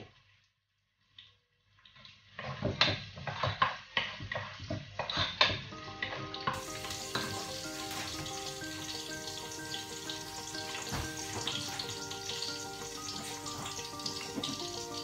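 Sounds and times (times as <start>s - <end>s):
food sizzling: 2.1s - 15.0s
background music: 5.7s - 15.0s.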